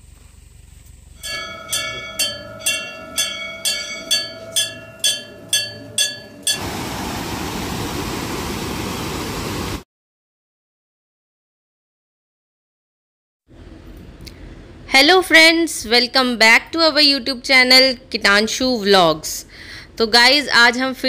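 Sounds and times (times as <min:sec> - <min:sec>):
temple bell ringing: 0:01.2 - 0:07.0
stream rushing over rocks: 0:06.0 - 0:09.8.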